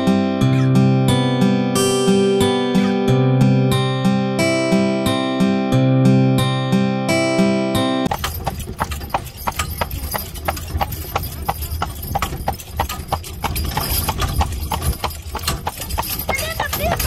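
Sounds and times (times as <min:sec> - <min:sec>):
acoustic guitar music: 0:00.0 - 0:10.4
hooves clip-clopping on pavement: 0:08.1 - 0:17.0.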